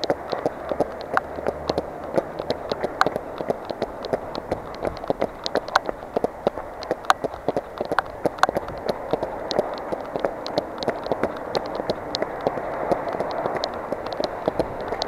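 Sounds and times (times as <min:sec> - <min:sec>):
raindrops tapping on camera: 0:00.0 - 0:15.0
running footsteps on wet pavement: 0:00.0 - 0:15.0.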